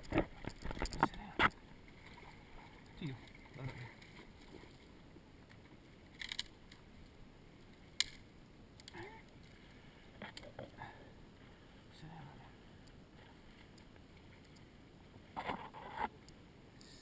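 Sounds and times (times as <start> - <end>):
gear handling clicks and knocks: 0.0 - 1.6, 6.2 - 6.8
faint voice murmuring: 8.9 - 9.3.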